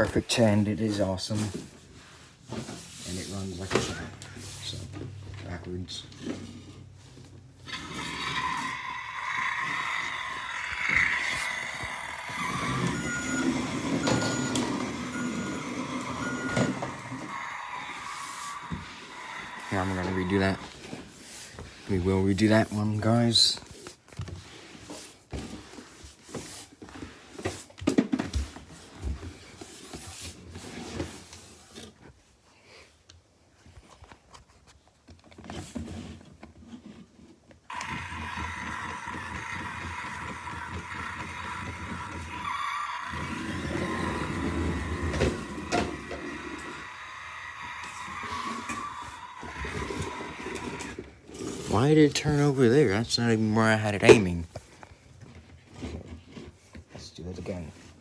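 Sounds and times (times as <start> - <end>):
toy vehicle engine sound effect: 7.6 - 20.7, 37.7 - 51.0
electronic reversing beeps: 12.3 - 18.4.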